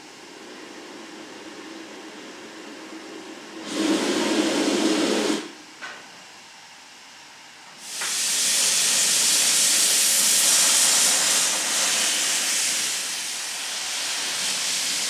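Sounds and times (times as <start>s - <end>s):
steam locomotive low hiss: 0.0s - 5.7s, 7.7s - 15.0s
loud steam blast: 3.6s - 5.6s, 7.8s - 15.0s
short steam puff: 3.6s - 5.6s, 7.8s - 15.0s.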